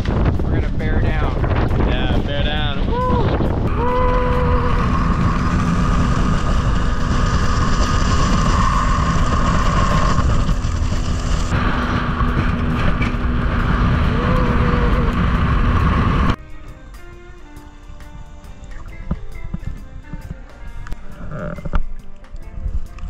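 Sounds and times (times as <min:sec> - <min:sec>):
rush of wind and water: 0:00.0 - 0:16.4
outboard motor whine: 0:01.4 - 0:22.5.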